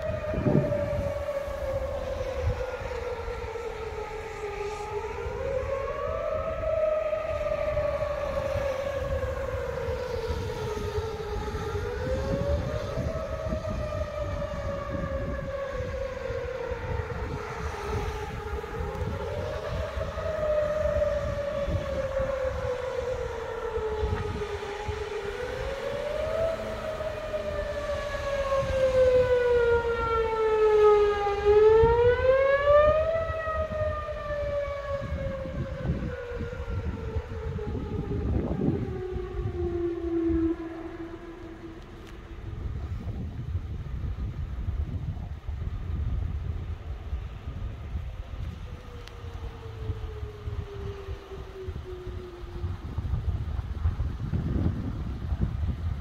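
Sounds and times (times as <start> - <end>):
warning siren wailing: 0.0 - 56.0
steady low rumble: 37.2 - 49.2.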